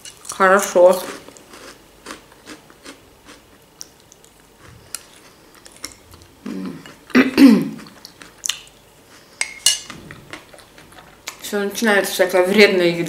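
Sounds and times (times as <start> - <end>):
person chewing with wet clicks: 1.2 - 7.2, 7.8 - 9.3.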